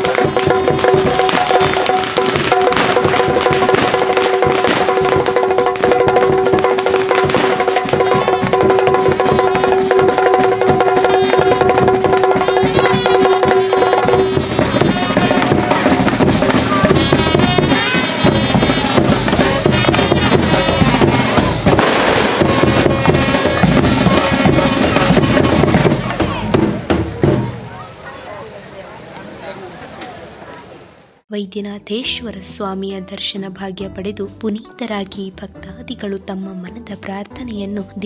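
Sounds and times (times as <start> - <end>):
fast dense drumming: 0.0 - 27.7.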